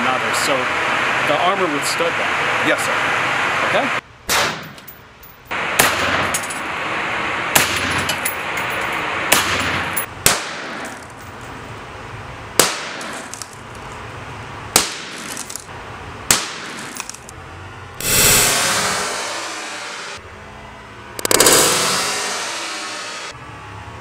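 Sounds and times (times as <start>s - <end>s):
rifle shots with reverberation: 12.6s - 13.3s.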